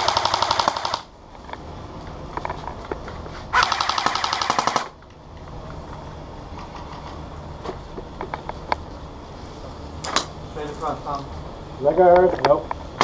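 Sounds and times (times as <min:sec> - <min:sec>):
airsoft gun full-auto burst: 0:00.0 - 0:01.1, 0:03.5 - 0:05.0.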